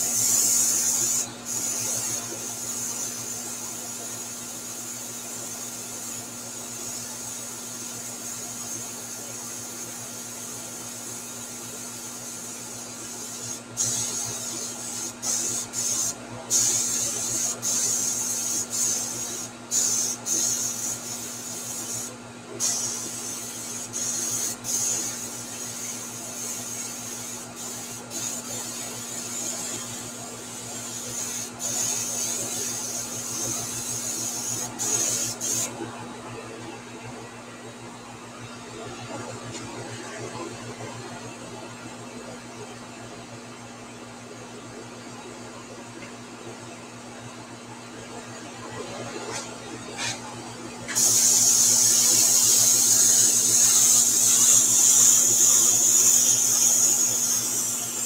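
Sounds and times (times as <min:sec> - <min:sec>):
airbrush hissing: 0:00.0 - 0:35.7, 0:50.9 - 0:58.0
steady low hum: 0:11.7 - 0:58.0.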